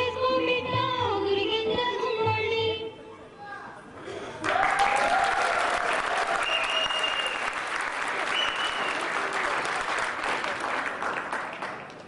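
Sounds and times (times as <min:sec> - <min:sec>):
audience applauding: 0:04.4 - 0:12.0
high whistles: 0:06.4 - 0:07.6, 0:08.3 - 0:09.1.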